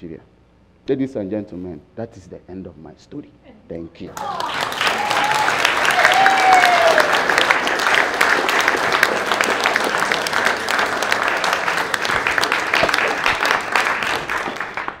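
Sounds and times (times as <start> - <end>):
audience applauding: 4.1 - 15.0.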